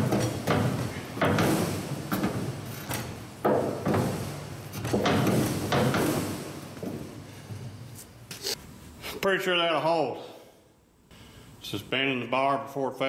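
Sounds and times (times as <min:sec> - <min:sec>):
metal clunking and creaking: 0:00.0 - 0:07.8.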